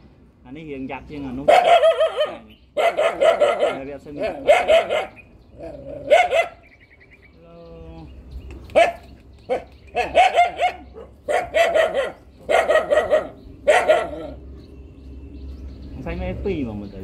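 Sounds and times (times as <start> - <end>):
dog barking: 1.4 - 5.3, 6.0 - 6.6, 8.7 - 14.4.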